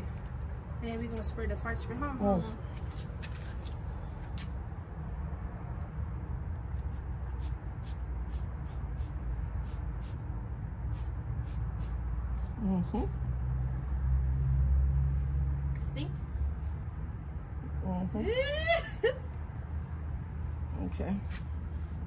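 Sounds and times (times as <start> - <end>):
crickets trilling: 0.0 - 22.0
spray bottle hissing puffs: 6.8 - 10.2, 10.9 - 12.0.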